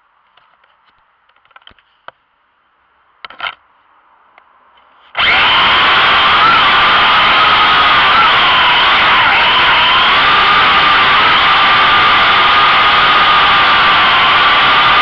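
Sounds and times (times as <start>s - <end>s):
drone motors buzzing: 5.2s - 15.0s.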